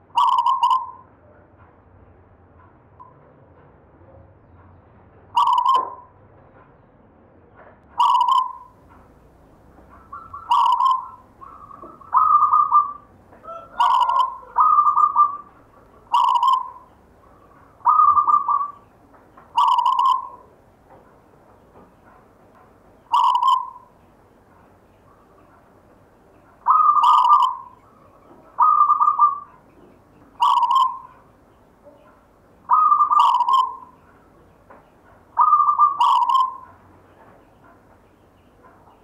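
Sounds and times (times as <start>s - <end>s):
dove cooing: 0.2s - 1.0s, 5.4s - 6.0s, 8.0s - 20.6s, 23.1s - 24.0s, 26.6s - 34.4s, 35.0s - 37.4s.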